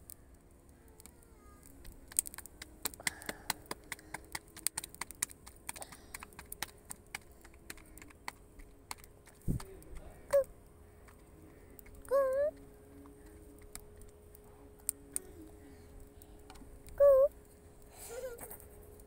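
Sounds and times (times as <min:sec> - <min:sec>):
hands slapping dough: 0:02.1 - 0:09.8.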